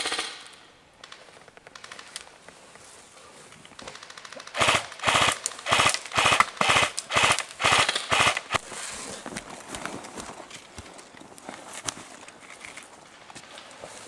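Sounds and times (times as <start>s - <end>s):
airsoft rifle bursts: 3.8s - 8.6s
distant airsoft fire: 3.8s - 8.6s.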